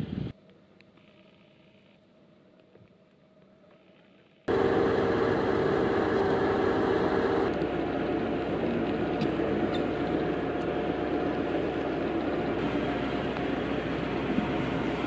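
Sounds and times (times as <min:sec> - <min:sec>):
crane engine rumbling: 0:04.5 - 0:15.0.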